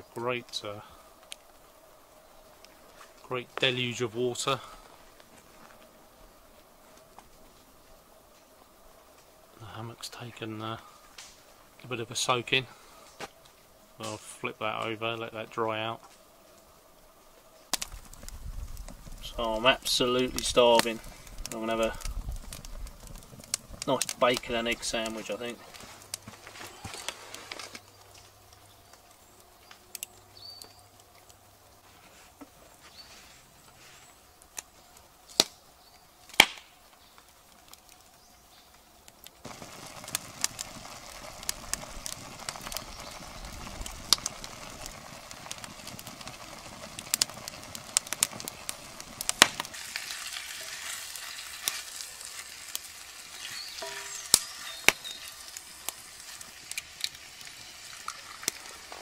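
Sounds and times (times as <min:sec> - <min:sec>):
bacon sizzling in a frying pan: 0:17.7 - 0:28.0, 0:39.4 - 0:59.0.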